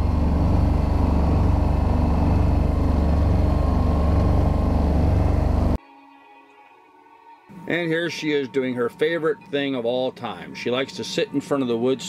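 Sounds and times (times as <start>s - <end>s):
boat engine droning: 0.0s - 5.8s.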